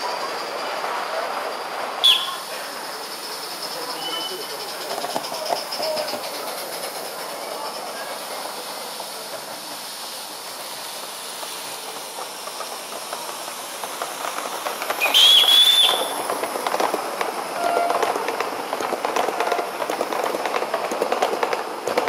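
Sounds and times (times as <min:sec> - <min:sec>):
steam locomotive hissing: 0:00.0 - 0:22.0
wheels clicking on track: 0:00.0 - 0:22.0
shrill train whistle: 0:02.0 - 0:02.4, 0:03.9 - 0:04.5, 0:15.0 - 0:16.2, 0:17.6 - 0:18.1.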